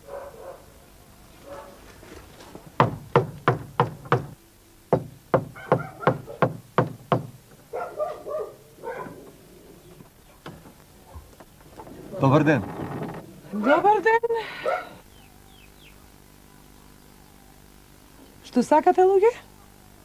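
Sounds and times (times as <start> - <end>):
knocking on wooden gate: 2.8 - 7.7.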